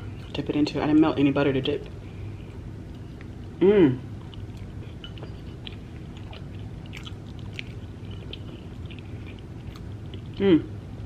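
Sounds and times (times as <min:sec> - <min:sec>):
person chewing wetly: 0:04.2 - 0:10.4.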